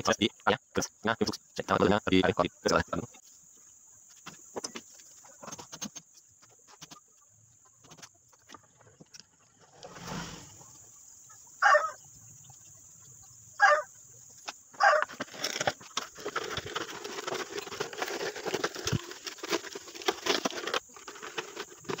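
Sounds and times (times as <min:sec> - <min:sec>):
chicken calls: 0:04.8 - 0:15.2
metal casing scraping and clattering: 0:15.0 - 0:22.0.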